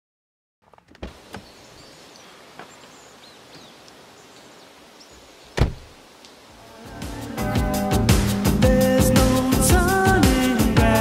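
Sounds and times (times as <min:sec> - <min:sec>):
faint bird chirps: 0:01.3 - 0:05.6
car door slammed shut: 0:05.6 - 0:05.9.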